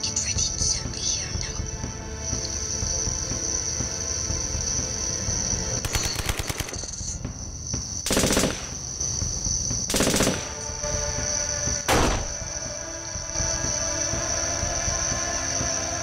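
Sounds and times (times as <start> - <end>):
machine-gun bursts: 5.8 - 7.1, 8.1 - 8.8, 9.9 - 10.6.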